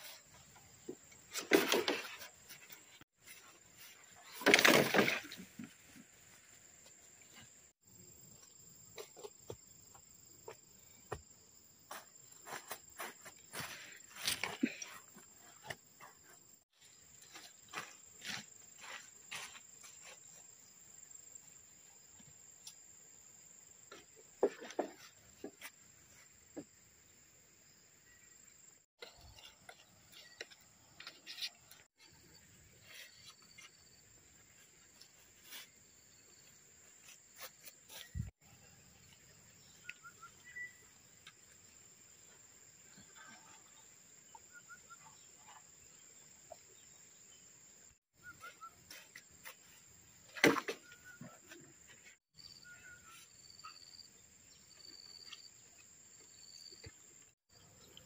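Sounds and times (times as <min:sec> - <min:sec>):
bamboo poles knocking and rustling: 0:00.3 - 0:07.5, 0:23.9 - 0:25.8, 0:48.4 - 0:52.2
bird chirps: 0:39.6 - 0:41.0, 0:44.3 - 0:47.4, 0:48.2 - 0:49.8.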